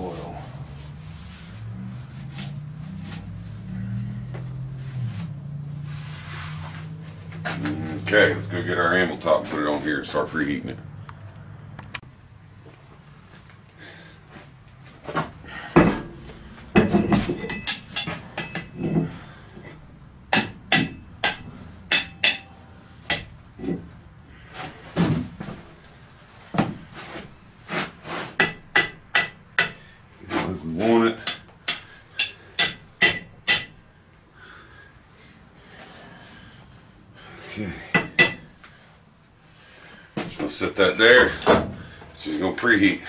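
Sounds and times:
metal clanks ringing: 15.8s - 24.0s, 28.4s - 34.4s, 37.8s - 38.9s, 40.8s - 42.0s.

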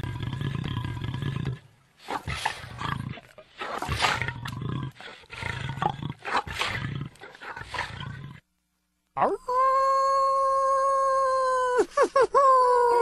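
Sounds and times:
sampled animal growls: 0.0s - 8.5s.

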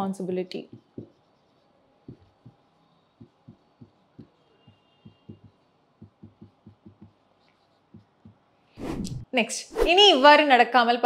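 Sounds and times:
marker tapping on whiteboard: 0.6s - 1.3s, 2.0s - 8.6s.

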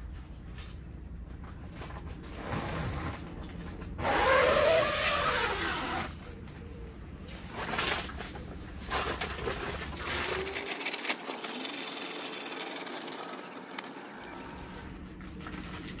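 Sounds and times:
plastic film curtain rustling: 7.4s - 14.9s
sharp plastic crackles: 7.4s - 16.0s.

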